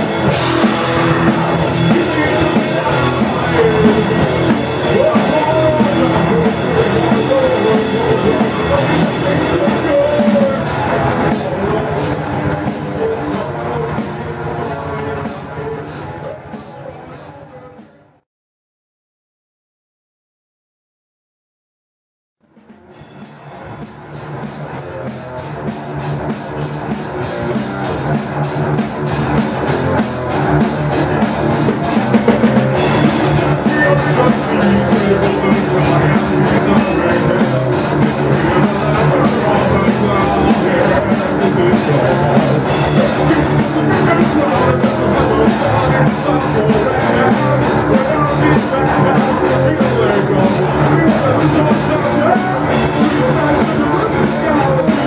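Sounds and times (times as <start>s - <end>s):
heavy metal band playing: 0.0s - 17.9s, 22.5s - 55.0s.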